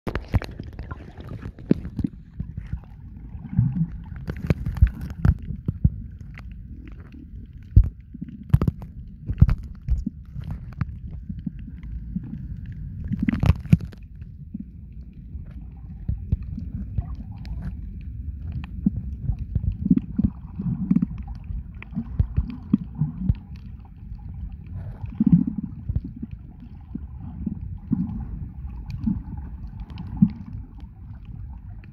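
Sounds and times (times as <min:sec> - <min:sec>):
sharp underwater clicks: 0:00.1 - 0:02.8, 0:03.8 - 0:14.3
bubbly gurgle: 0:00.1 - 0:31.9
muffled underwater rumble: 0:00.1 - 0:31.9.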